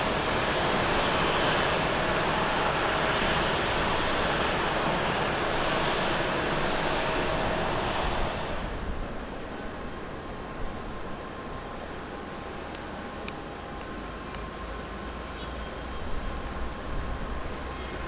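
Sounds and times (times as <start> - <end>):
jet engines roaring: 0.0 - 11.6.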